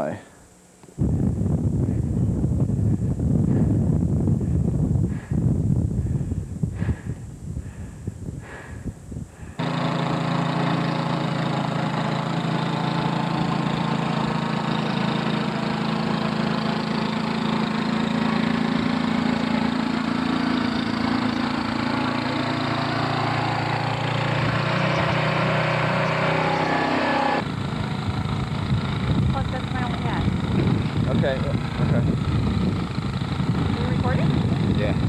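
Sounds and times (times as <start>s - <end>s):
snowblower engine running: 9.3s - 35.0s.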